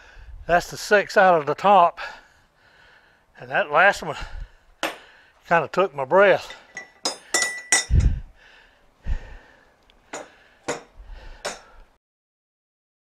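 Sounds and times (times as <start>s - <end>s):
metal tools clinking: 6.3s - 8.2s.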